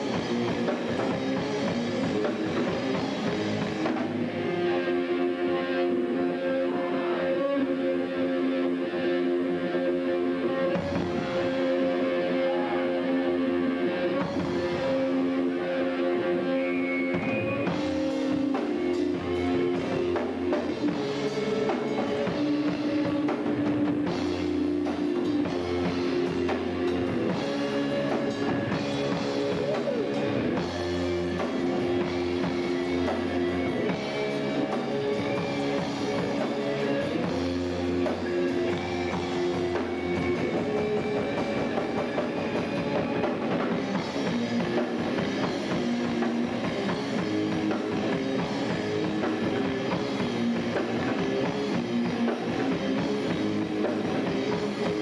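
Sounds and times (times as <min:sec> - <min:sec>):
bass guitar: 0:00.0 - 0:55.0
drum kit: 0:00.0 - 0:55.0
electric guitars: 0:00.0 - 0:55.0.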